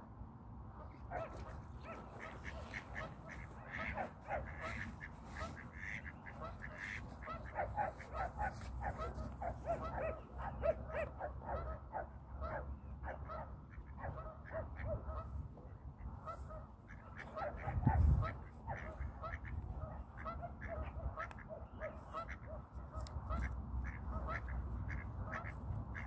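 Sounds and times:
ducks calling: 0.9 - 11.8, 16.1 - 26.0.

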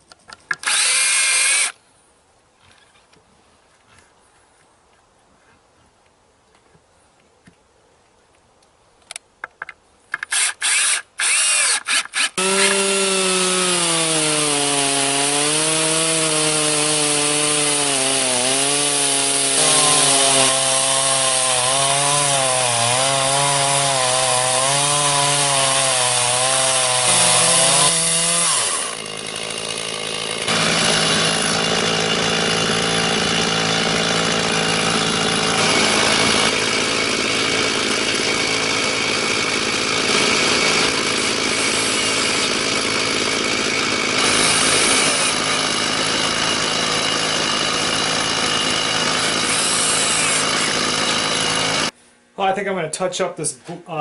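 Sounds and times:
chainsaw ripping a log: 0.6 - 1.8, 10.3 - 52.0.

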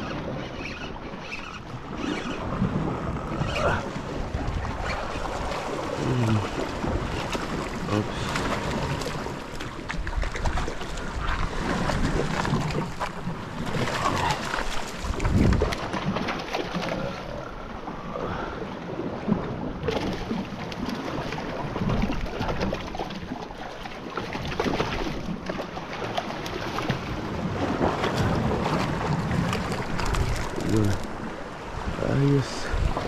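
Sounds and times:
sea washing: 0.0 - 33.0
wind buffeting microphone: 1.0 - 16.2, 27.1 - 33.0.

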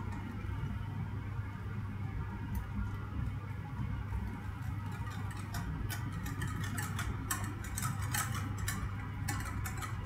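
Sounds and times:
steady low hum: 0.0 - 10.0
whisk clicking against a pot: 4.5 - 10.0.

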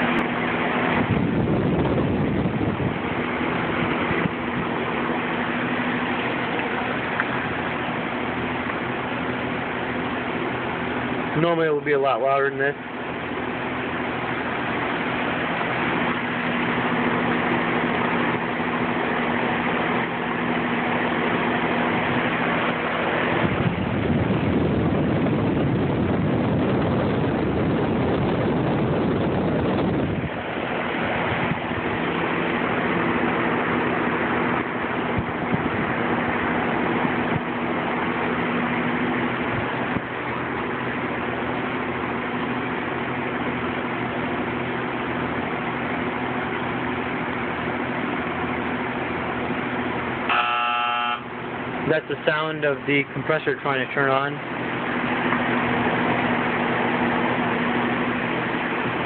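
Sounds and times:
wind rush on microphone: 0.0 - 7.6, 21.1 - 41.4
condenser fan humming: 0.0 - 59.0.

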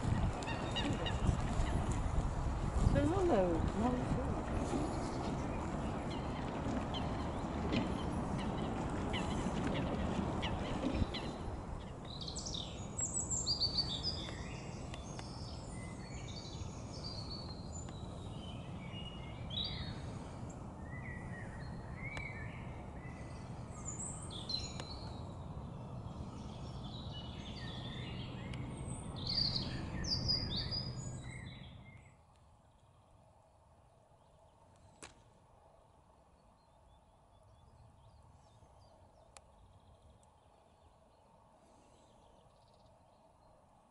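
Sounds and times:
steady low rumble: 0.0 - 33.0
small birds chirping: 0.4 - 2.0, 2.8 - 33.0.

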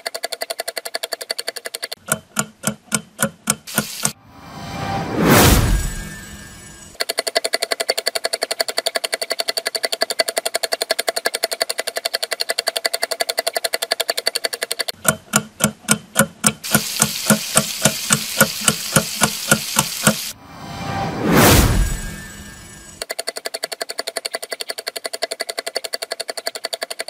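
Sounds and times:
hiss: 3.7 - 4.2, 16.6 - 23.0
fast repeating pulses: 3.7 - 7.0, 16.6 - 23.1.

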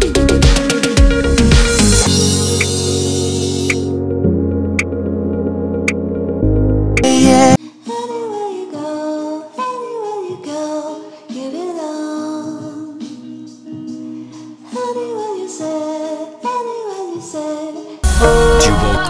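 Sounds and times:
pop song with singing voice: 7.0 - 19.0.

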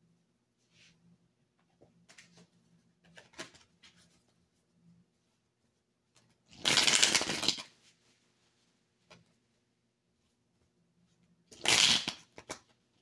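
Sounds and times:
cards shuffling rapid clicks: 6.6 - 7.7, 11.5 - 12.7.

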